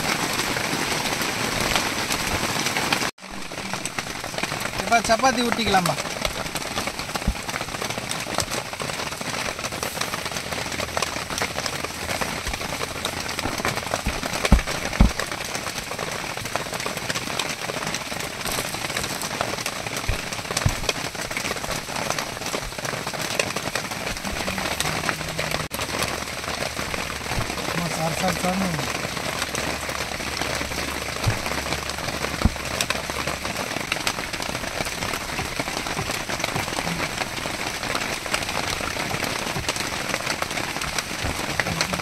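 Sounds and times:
steady rain falling: 0:00.0 - 0:42.0
dull low thumps: 0:11.6 - 0:15.5, 0:29.0 - 0:33.6.

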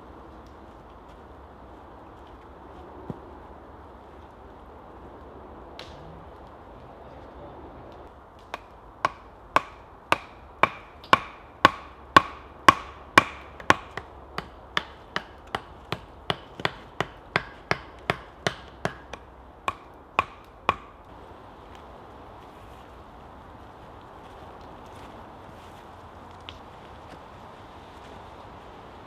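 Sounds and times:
stakes hammered into ground: 0:08.4 - 0:21.0.

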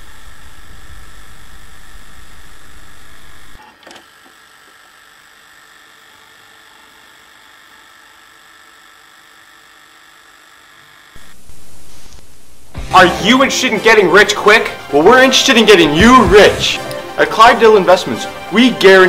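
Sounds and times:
tape hiss: 0:00.0 - 0:03.6, 0:11.2 - 0:13.7
faint high whining tones: 0:00.0 - 0:12.8
electrical hum: 0:00.0 - 0:19.0.

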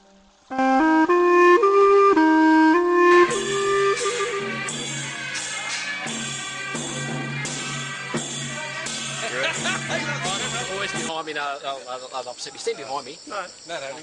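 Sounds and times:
melody of held notes: 0:00.0 - 0:11.1
band music with beat and bass: 0:02.8 - 0:11.2.

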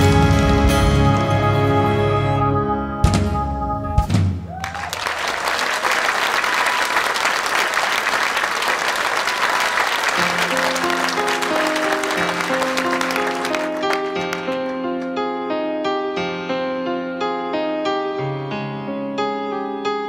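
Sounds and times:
audience applauding: 0:04.5 - 0:15.1.

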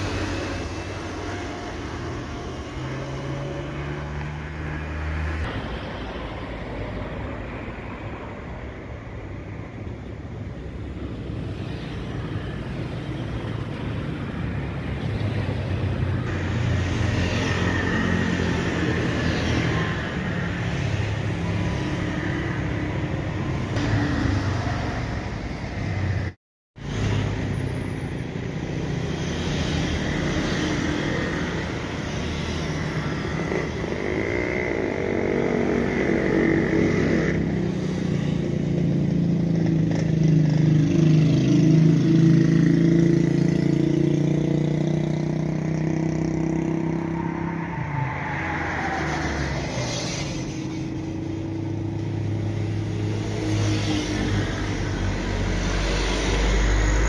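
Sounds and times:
road traffic noise: 0:00.0 - 0:57.0.

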